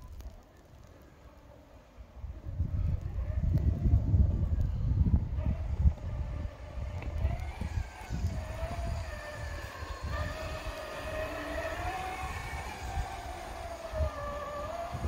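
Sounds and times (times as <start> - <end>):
plow pushing snow: 2.8 - 15.0
electric motor whining: 3.0 - 15.0.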